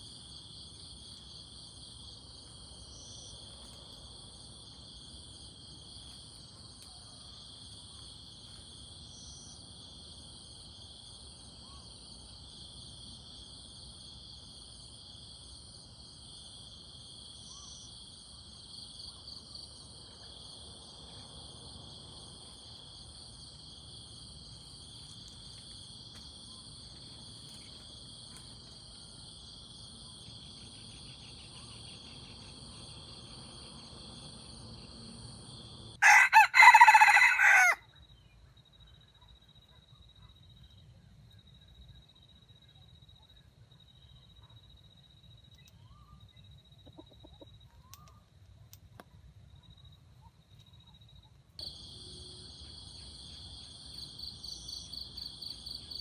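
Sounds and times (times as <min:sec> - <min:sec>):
rooster crowing: 0:36.0 - 0:37.9
insects chirring: 0:49.5 - 0:56.0.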